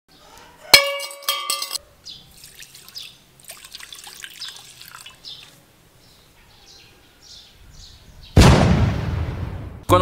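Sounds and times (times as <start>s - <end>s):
liquid splashing into metal bowl: 0.8s - 5.5s.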